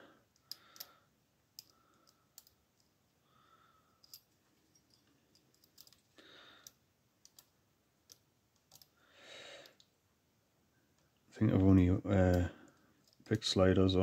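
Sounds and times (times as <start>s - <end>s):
lock pick metallic clicks: 1.6s - 2.9s, 4.0s - 6.0s, 8.1s - 9.0s.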